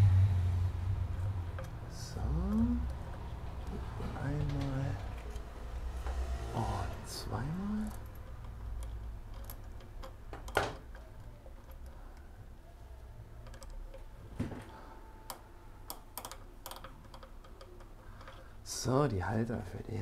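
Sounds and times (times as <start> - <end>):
low steady hum: 0.0 - 20.0
small metallic clicks: 7.6 - 12.3, 13.3 - 14.1, 15.2 - 18.7.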